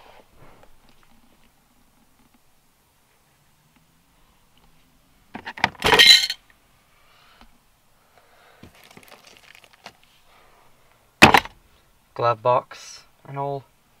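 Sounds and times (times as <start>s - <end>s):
plastic clatter of glove box: 5.4s - 6.2s, 11.2s - 11.6s
contents rattling: 5.6s - 6.4s, 8.7s - 10.0s
rustling and small clinks: 5.8s - 6.4s, 8.7s - 10.0s.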